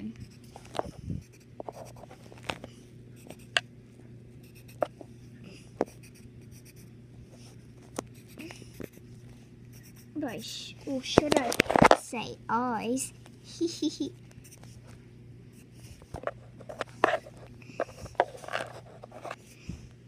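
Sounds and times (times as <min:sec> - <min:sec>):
faint steady hum: 0:00.0 - 0:20.0
pencil scratching on paper: 0:00.2 - 0:02.2, 0:04.4 - 0:04.9, 0:05.8 - 0:06.9, 0:09.7 - 0:10.2, 0:18.2 - 0:19.4.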